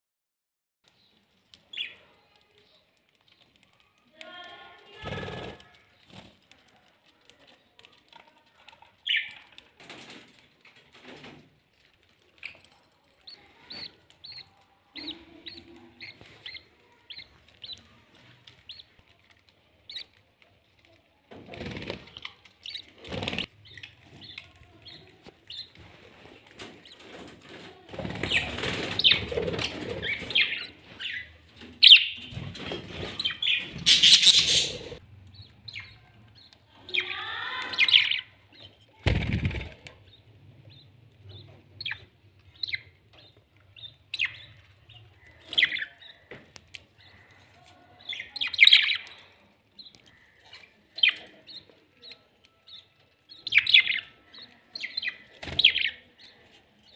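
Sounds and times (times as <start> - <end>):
wing flapping and scuffling: 0.9 - 36.3, 36.9 - 47.8
budgerigars chirping: 13.3 - 17.9, 18.6 - 18.9, 19.9 - 20.2, 28.2 - 38.7, 40.0 - 46.3, 48.0 - 56.9.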